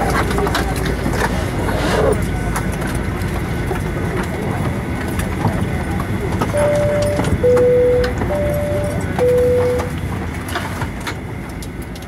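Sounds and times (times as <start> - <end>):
airplane cabin noise: 0.0 - 12.0
alternating electronic tones: 6.6 - 10.0.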